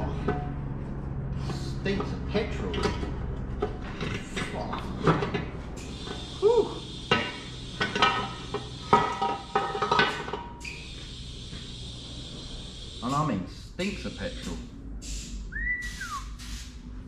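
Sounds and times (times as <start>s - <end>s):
metal clanks and knocks: 0.0s - 0.8s, 1.9s - 5.6s, 7.1s - 10.6s.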